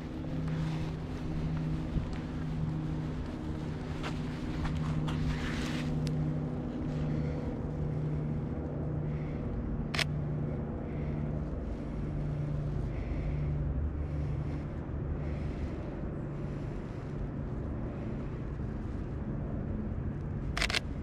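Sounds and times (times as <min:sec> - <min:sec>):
low motor hum: 0:00.0 - 0:21.0
camera shutter click: 0:20.6 - 0:20.8.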